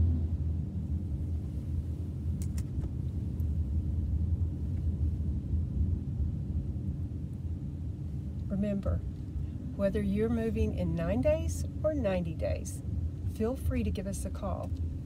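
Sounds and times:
car driving cabin rumble: 0.0 - 15.0.

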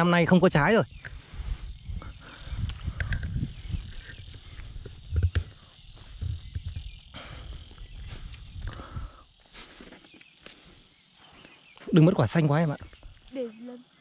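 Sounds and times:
low wind rumble on microphone: 0.0 - 9.3.

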